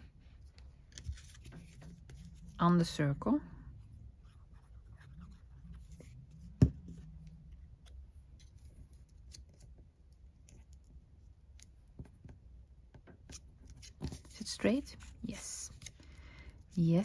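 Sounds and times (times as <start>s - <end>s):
paper rustling: 0.4s - 2.6s.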